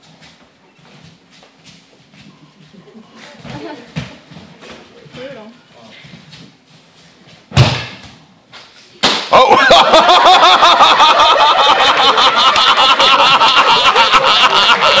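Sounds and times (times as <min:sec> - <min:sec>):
body slapping on mats: 0:07.5 - 0:09.4
cheering and whooping: 0:09.4 - 0:15.0.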